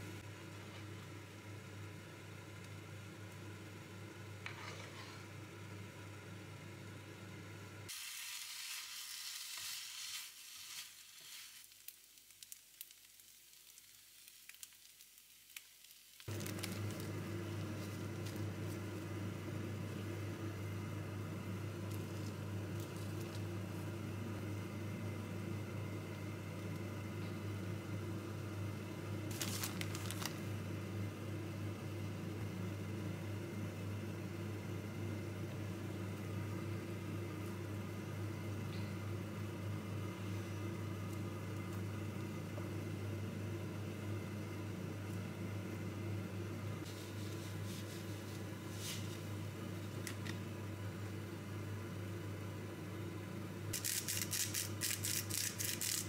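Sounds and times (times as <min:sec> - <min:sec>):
steady low hum: 0:00.0 - 0:07.9, 0:16.3 - 0:56.0
rice sizzling in a frying pan: 0:00.0 - 0:56.0
handling crackle: 0:08.6 - 0:18.9, 0:29.3 - 0:30.5.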